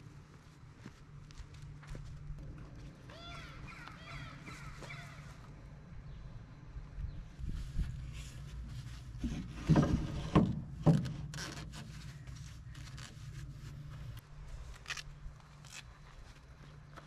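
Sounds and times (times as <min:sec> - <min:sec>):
steady low hum: 0:00.0 - 0:10.8
metal scraping and clunking: 0:09.1 - 0:11.8.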